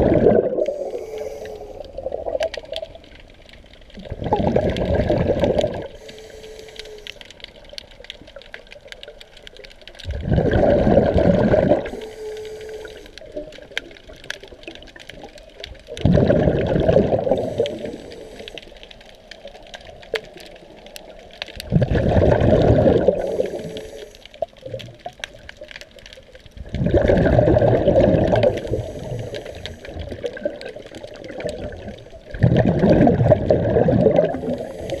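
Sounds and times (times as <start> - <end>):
exhaled bubbles rushing: 0.0 - 1.2, 1.8 - 3.2, 3.9 - 6.0, 10.0 - 12.0, 13.3 - 18.2, 21.6 - 23.8, 26.5 - 35.0
regulator hiss: 0.6 - 1.9, 5.9 - 7.2, 11.8 - 13.2, 17.3 - 18.8, 23.1 - 24.3, 28.6 - 30.0, 34.4 - 35.0.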